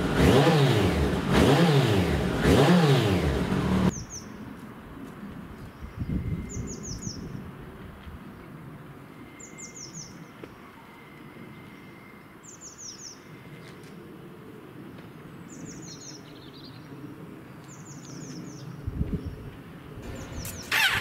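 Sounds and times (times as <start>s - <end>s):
motorcycle engine revving: 0.0s - 4.0s, 20.0s - 21.0s
small birds chirping: 20.0s - 21.0s.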